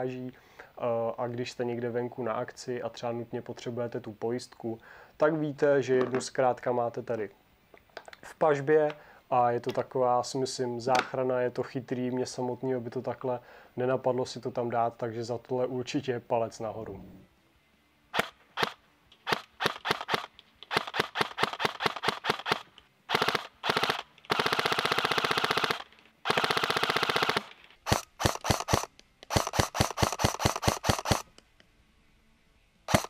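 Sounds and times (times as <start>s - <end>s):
airsoft gun firing: 18.1s - 31.3s.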